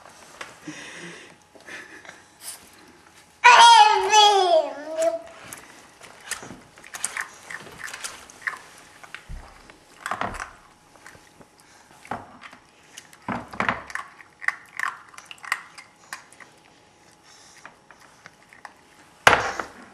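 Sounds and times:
puppy eating dry kibble: 5.3s - 19.2s.

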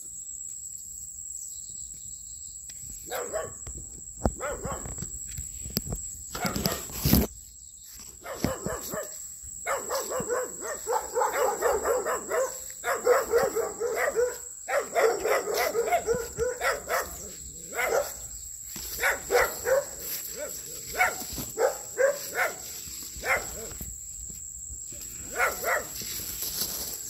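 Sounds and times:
dog barking: 3.1s - 3.6s, 4.4s - 5.0s, 6.4s - 6.9s, 8.2s - 23.8s, 25.2s - 26.0s.

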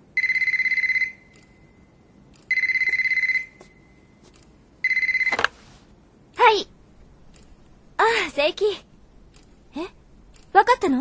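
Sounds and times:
telephone pulsing electronic ring: 0.2s - 1.9s, 2.5s - 3.9s, 4.8s - 5.4s.

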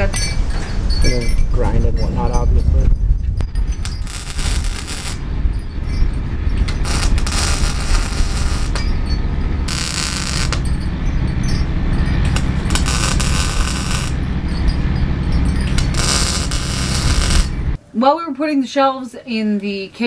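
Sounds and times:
steady low hum: 0.0s - 18.0s
welding arc crackling and sizzling: 3.7s - 5.2s, 6.6s - 8.9s, 9.6s - 11.0s, 12.2s - 14.3s, 15.7s - 17.8s.

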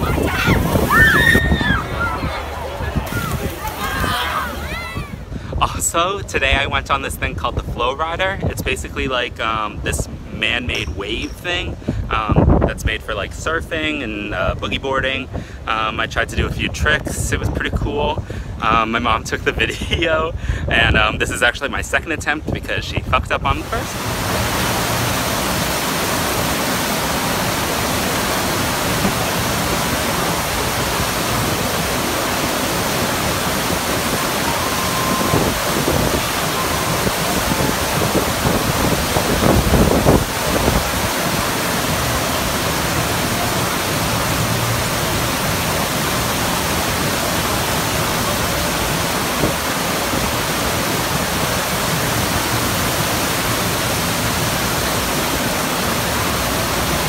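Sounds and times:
water rushing over surf surface: 0.0s - 6.8s, 23.3s - 57.0s.

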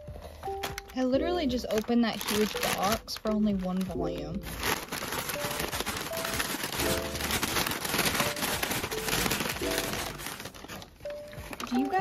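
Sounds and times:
packing paper crumpling: 0.4s - 12.0s.

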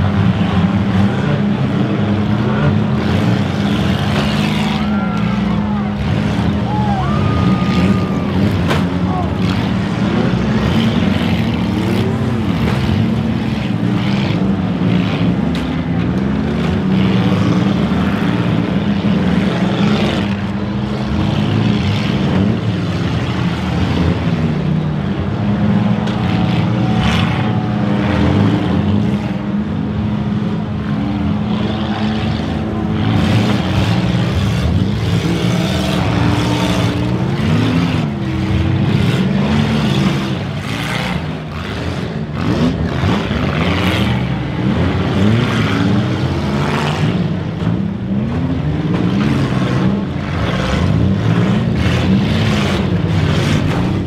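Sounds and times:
car engines revving: 0.0s - 54.0s
cars crashing together: 4.0s - 9.8s.

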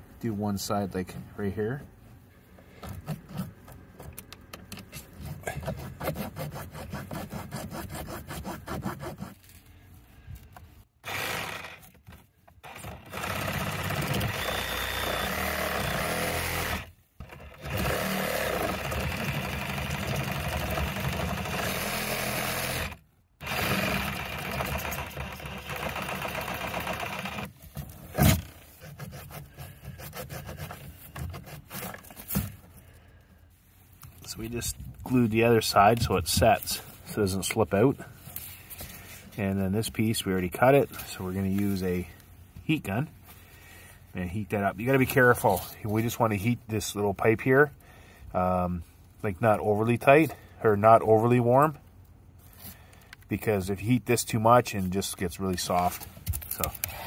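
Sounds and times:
saw cutting plastic pipe: 4.9s - 9.4s, 11.0s - 32.6s.

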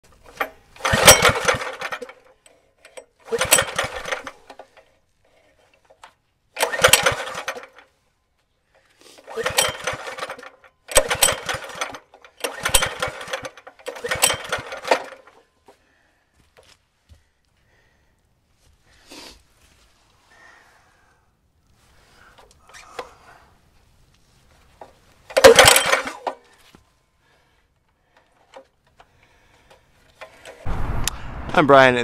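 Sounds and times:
small engine pull-start turning over: 0.2s - 4.9s, 5.9s - 7.9s, 9.2s - 15.4s, 25.2s - 26.5s, 29.6s - 30.7s.

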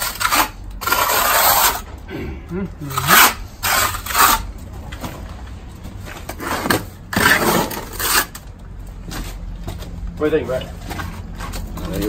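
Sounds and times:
trowel scraping wet stucco: 0.0s - 1.9s, 2.8s - 4.6s, 6.3s - 8.4s.

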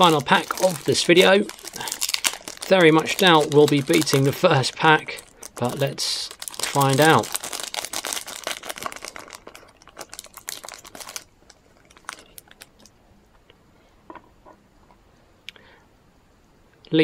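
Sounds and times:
foil wrapper crinkling: 0.0s - 12.9s.

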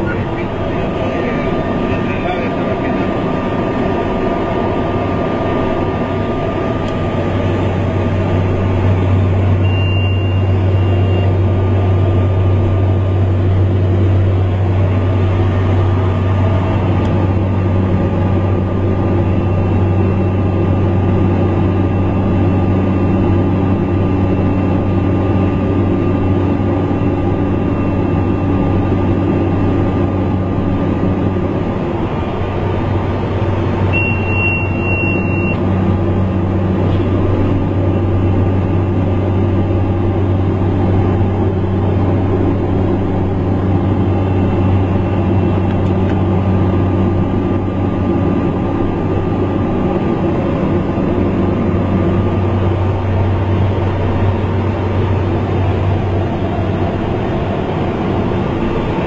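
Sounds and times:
light aircraft engine droning: 0.0s - 59.0s
faint high steady tone: 9.6s - 11.4s, 33.9s - 35.6s.

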